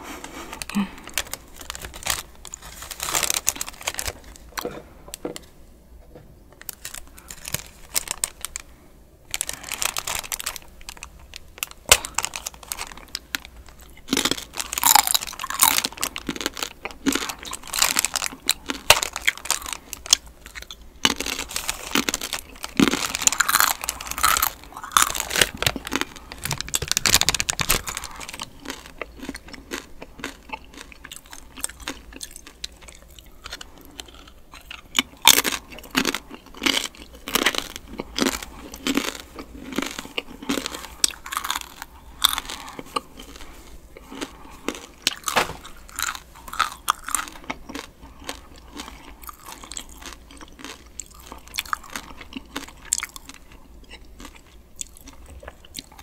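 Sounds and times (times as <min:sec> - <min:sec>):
foil wrapper crinkling: 0:00.2 - 0:04.7, 0:06.6 - 0:08.7, 0:09.3 - 0:29.0, 0:45.1 - 0:47.4.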